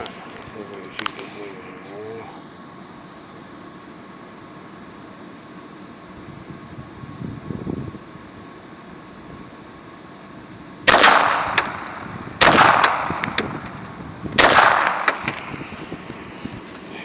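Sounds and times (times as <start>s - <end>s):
handgun shots: 10.9s - 13.6s, 14.4s - 15.5s.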